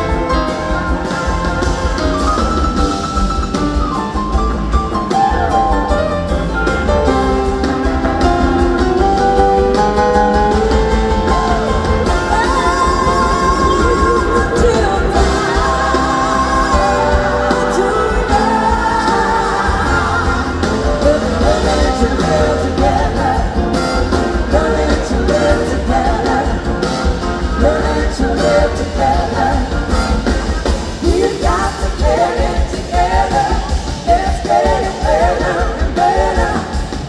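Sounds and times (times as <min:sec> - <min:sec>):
live rock band playing: 0:00.0 - 0:37.0
woman singing lead vocal: 0:12.0 - 0:37.0.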